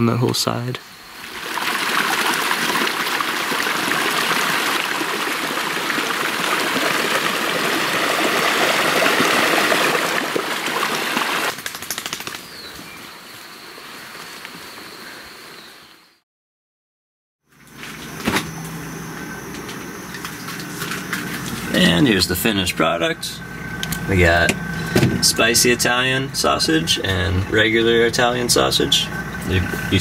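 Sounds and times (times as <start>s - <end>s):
stream water flowing: 1.0s - 11.6s.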